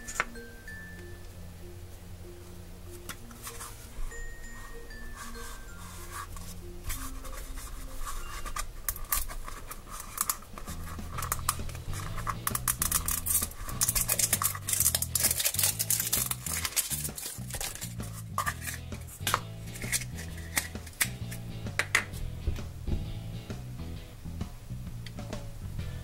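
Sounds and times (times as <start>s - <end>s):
background music: 0.0s - 26.0s
plastic wrap crinkling: 5.1s - 21.1s.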